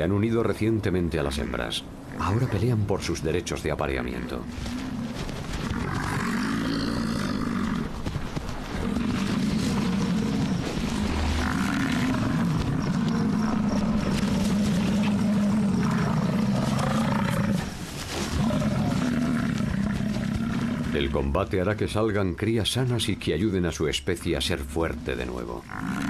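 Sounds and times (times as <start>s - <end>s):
bison bellowing: 8.7s - 21.2s.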